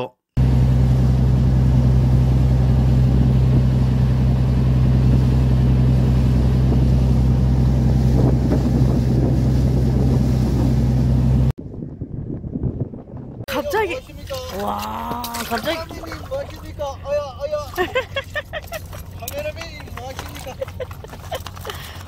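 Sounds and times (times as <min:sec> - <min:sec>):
water splashing along hull: 0:00.4 - 0:11.5, 0:13.5 - 0:22.0
boat engine droning: 0:00.4 - 0:11.9, 0:13.7 - 0:22.0
wind on microphone: 0:01.0 - 0:14.3.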